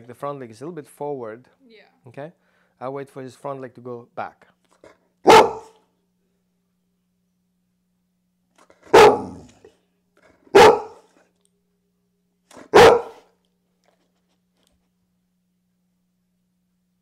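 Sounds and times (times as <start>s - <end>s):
large dog barking: 5.2s - 5.8s, 8.8s - 9.7s, 10.5s - 11.1s, 12.5s - 13.3s.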